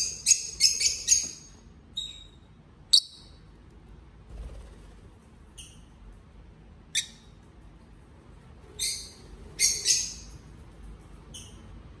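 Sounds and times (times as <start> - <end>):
bird chirping: 0.0 - 3.4, 6.9 - 7.4, 8.7 - 10.5, 11.2 - 11.8.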